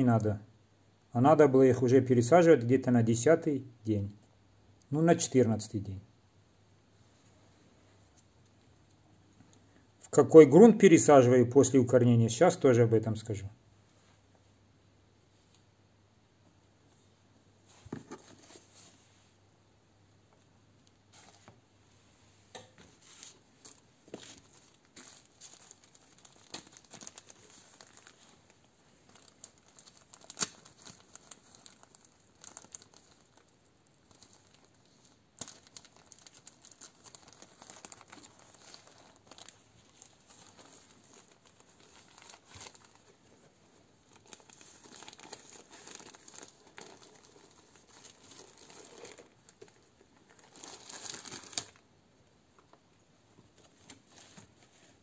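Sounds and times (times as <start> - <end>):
plastic bags rustling: 22.9 - 51.8
sharp crackles from bags: 23.6 - 43.1, 44.0 - 51.8.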